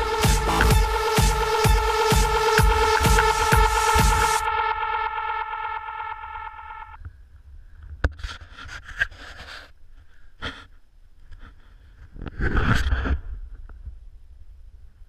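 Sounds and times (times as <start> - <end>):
electronic dance music: 0.0 - 7.0.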